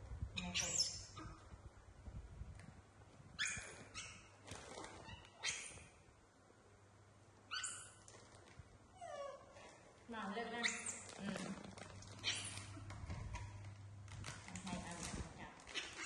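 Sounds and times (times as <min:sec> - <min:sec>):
baby monkeys squeaking: 0:00.4 - 0:01.4, 0:03.4 - 0:06.0, 0:07.5 - 0:08.1, 0:10.6 - 0:11.2
monkey whimper: 0:09.0 - 0:09.5.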